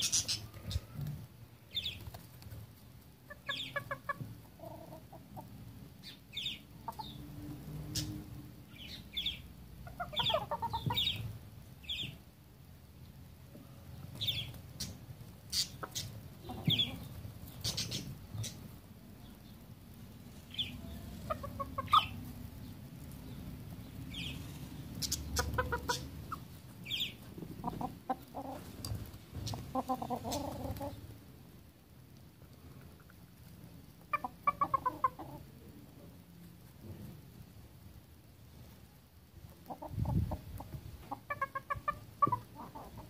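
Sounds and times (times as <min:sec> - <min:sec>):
roosters clucking: 0:00.0 - 0:12.2, 0:13.0 - 0:31.7, 0:32.4 - 0:37.6, 0:38.6 - 0:43.0.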